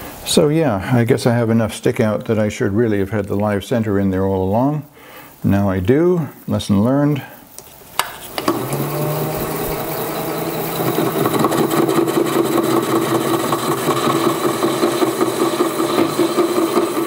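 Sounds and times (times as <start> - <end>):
lathe motor hum: 8.3 - 17.0.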